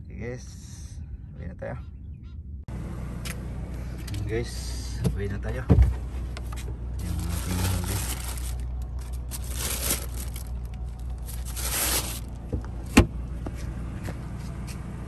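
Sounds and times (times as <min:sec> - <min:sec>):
plastic bag crinkling: 0:07.0 - 0:12.4.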